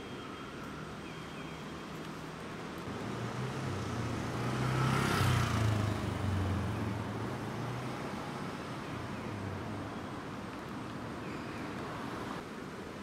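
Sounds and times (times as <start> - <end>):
vehicle passing on street: 2.2 - 12.4.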